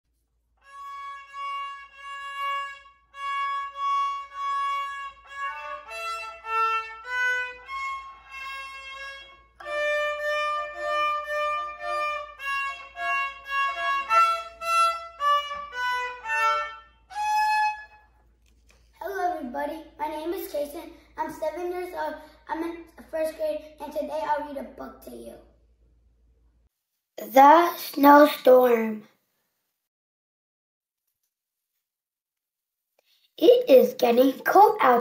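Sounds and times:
solo violin tune: 0.6 - 18.0.

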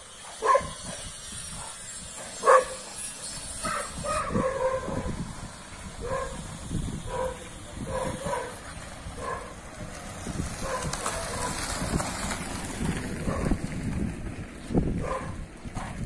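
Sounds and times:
dog barking: 0.3 - 1.0, 2.4 - 2.8, 3.6 - 5.1, 6.0 - 6.4, 7.1 - 8.6, 9.2 - 9.5, 15.0 - 15.4.

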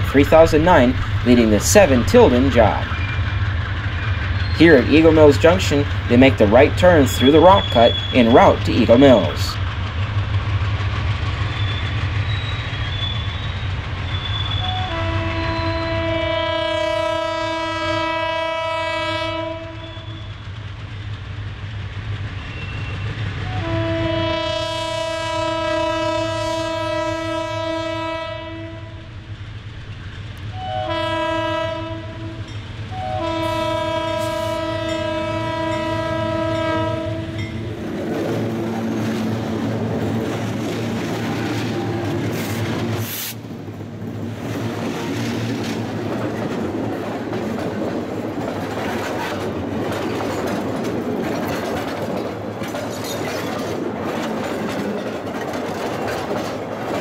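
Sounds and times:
diesel engines running: 0.0 - 12.3
locomotive horn blasts: 14.5 - 20.2, 23.4 - 29.1, 30.5 - 37.6
train wheels clattering over rail joints: 32.5 - 57.0.

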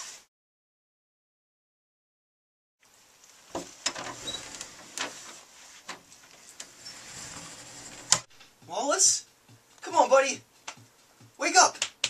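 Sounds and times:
faint room hiss: 2.8 - 12.0
footsteps on hard floor: 7.2 - 9.9, 10.6 - 11.4.

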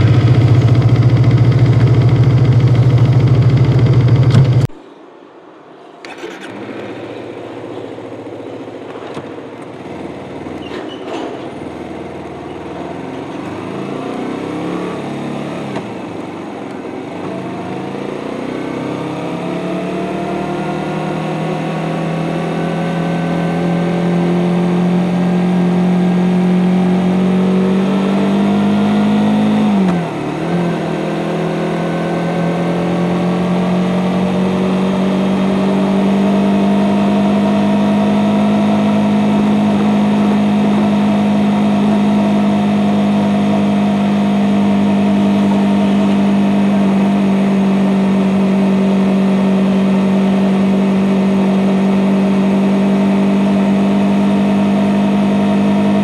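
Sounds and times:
motorcycle engine running: 0.0 - 4.8, 23.3 - 56.0.

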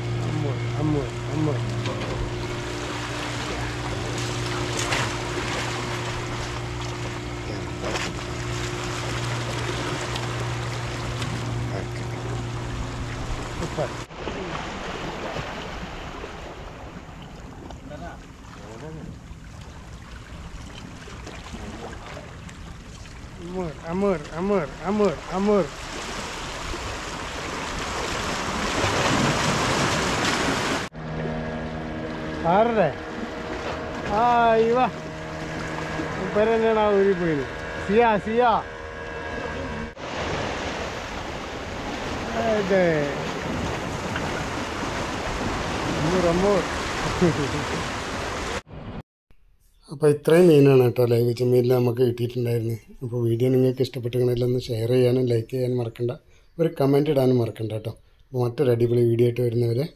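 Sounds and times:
low hum: 0.0 - 47.7
boat engine drone: 0.0 - 49.0
water splashes: 0.0 - 49.0
sea waves washing against rocks: 24.8 - 30.9, 40.0 - 48.6
water washing against rocks: 25.1 - 30.9.

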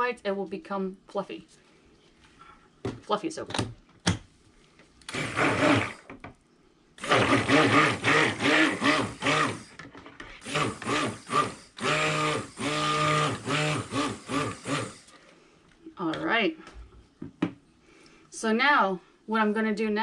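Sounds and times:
stick blender motor running: 5.1 - 6.1, 7.0 - 9.8, 10.4 - 15.2.

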